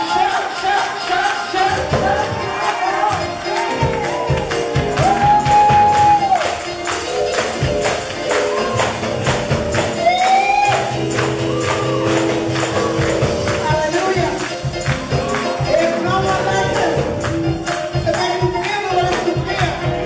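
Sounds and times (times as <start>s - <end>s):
sustained keyboard chords: 0.0s - 20.0s
hand claps: 2.6s - 16.1s.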